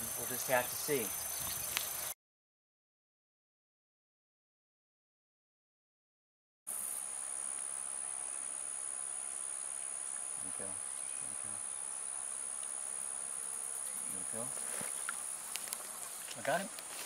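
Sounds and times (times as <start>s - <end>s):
insects buzzing: 0.0s - 2.2s, 6.7s - 17.0s.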